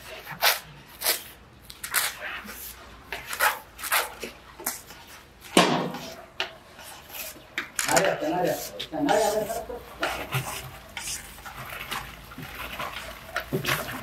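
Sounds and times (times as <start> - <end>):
plastic sack rustling: 9.9 - 14.0.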